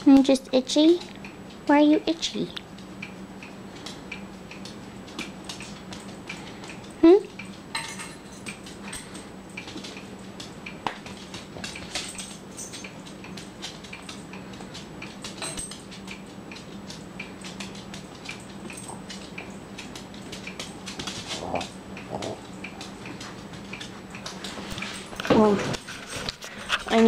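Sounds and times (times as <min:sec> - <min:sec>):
collar tags and nails clinking: 0:07.7 - 0:10.0, 0:11.1 - 0:14.2, 0:15.2 - 0:16.0, 0:17.4 - 0:22.4.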